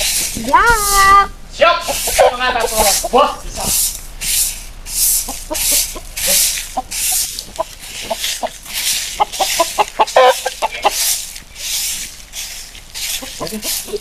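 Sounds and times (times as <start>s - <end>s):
broom sweeping dirt ground: 0.0s - 14.0s
chicken clucking: 0.0s - 14.0s.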